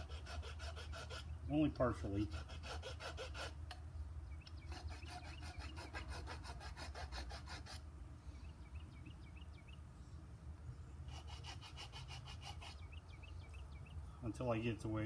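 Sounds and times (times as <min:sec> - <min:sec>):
rasp filing wood: 0:00.0 - 0:01.3, 0:02.0 - 0:03.6, 0:04.7 - 0:07.8, 0:11.1 - 0:12.9.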